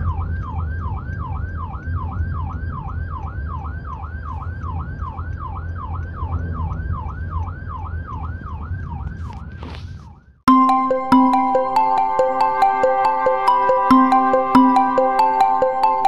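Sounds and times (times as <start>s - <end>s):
electronic jingle with bell-like notes: 10.5s - 16.0s
electronic siren yelping: 10.5s - 16.0s.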